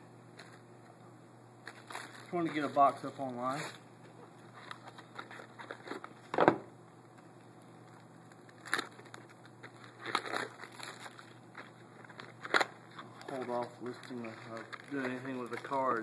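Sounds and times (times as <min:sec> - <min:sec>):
plastic wrapper crinkling rips: 0:01.6 - 0:03.8, 0:04.5 - 0:06.3, 0:07.8 - 0:16.0.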